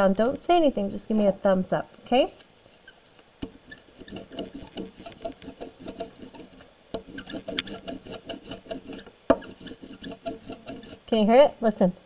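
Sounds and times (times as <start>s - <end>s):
ink roller tacky crackle: 2.3s - 11.4s.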